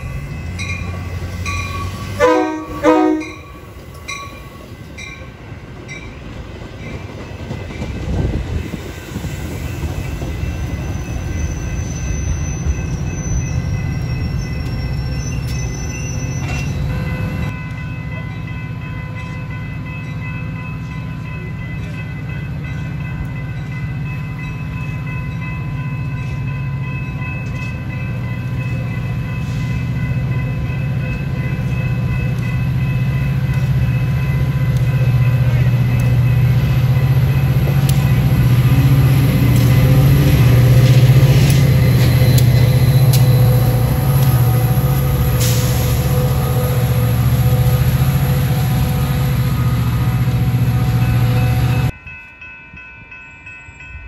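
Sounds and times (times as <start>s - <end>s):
train wheels rumbling on rail: 0.0s - 52.0s
train horn blasts: 2.1s - 3.6s.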